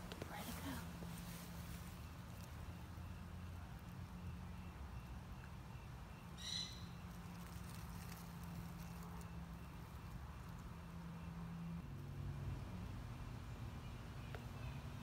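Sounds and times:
faint rustles in grass: 0.0s - 2.8s, 7.0s - 10.7s.

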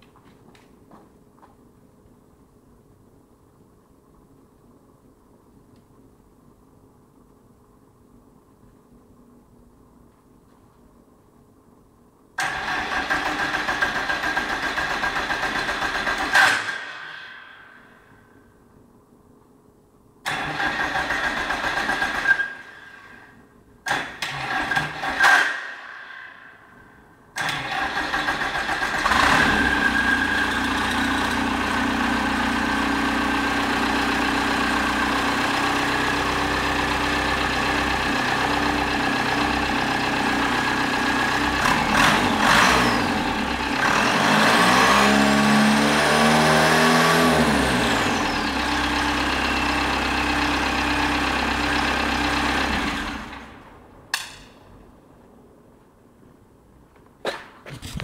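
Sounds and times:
engine revving: 27.4s - 31.4s, 40.6s - 49.8s
diesel engine idling: 27.8s - 44.4s, 47.6s - 53.9s.

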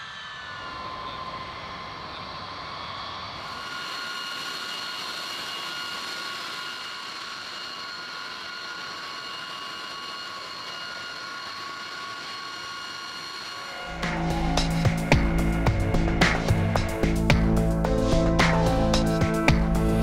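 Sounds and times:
jet turbines whining: 0.0s - 20.0s.

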